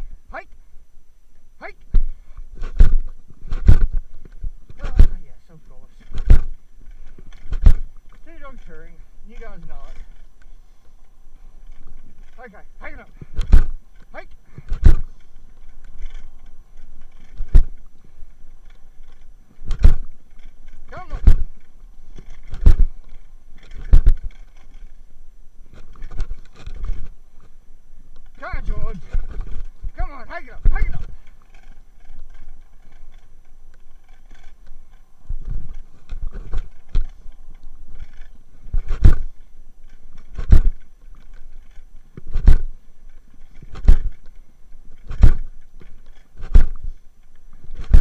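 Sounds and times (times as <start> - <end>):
tyre and wind noise: 0.0 - 48.0
heavy thumps: 1.9 - 5.2, 6.1 - 8.0, 11.8 - 15.2, 17.4 - 17.8, 19.6 - 20.2, 20.9 - 21.6, 22.4 - 23.0, 23.7 - 24.4, 38.7 - 39.3, 40.3 - 40.8, 42.2 - 42.7, 43.6 - 44.2, 45.0 - 45.5, 46.4 - 47.0, 47.8 - 48.0
rig rolling over gravel: 2.0 - 48.0
thumps and knocks: 7.3 - 7.9, 13.2 - 13.8, 23.7 - 24.4, 40.4 - 40.8, 43.6 - 44.2, 45.0 - 45.5, 46.4 - 46.9, 47.8 - 48.0.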